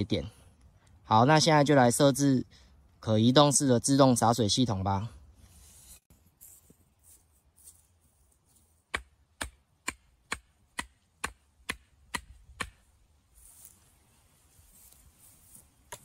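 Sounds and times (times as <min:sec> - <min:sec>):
hammer striking bamboo stake: 0:08.8 - 0:12.9.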